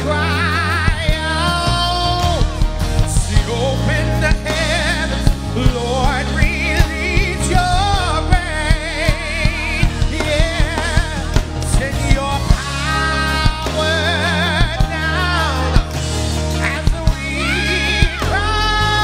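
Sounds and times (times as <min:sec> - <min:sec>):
gospel band with drums and bass: 0:00.0 - 0:19.0
person singing with vibrato: 0:00.0 - 0:19.0.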